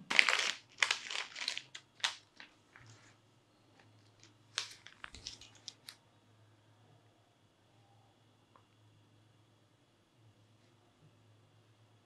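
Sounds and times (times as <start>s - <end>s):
plastic bag crinkling: 0.0s - 3.0s, 4.0s - 6.0s.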